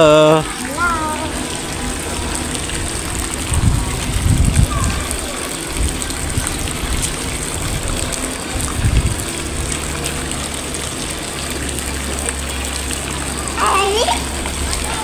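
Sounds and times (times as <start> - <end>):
flowing water rushing: 0.0 - 15.0
low rumble: 1.7 - 10.3.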